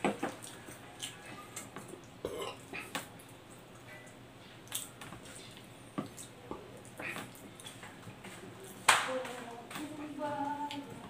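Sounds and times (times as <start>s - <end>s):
person chewing bread: 0.0s - 8.8s.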